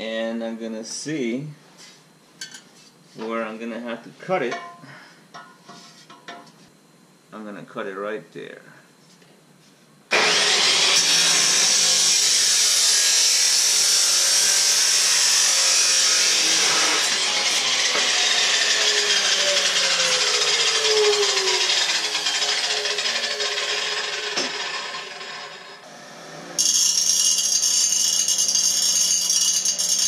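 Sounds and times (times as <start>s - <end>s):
chop saw grinding steel pipe: 10.1s - 30.0s.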